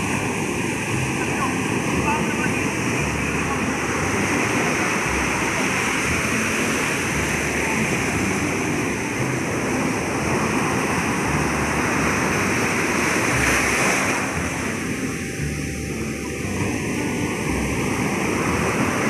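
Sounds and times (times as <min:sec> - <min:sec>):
ocean waves breaking into surf: 0:00.0 - 0:19.0.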